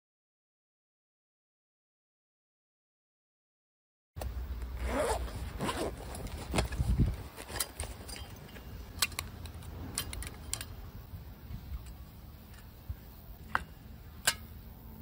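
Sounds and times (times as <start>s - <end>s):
rustling and scraping: 4.6s - 10.8s
sharp metallic clicks: 7.6s - 10.9s.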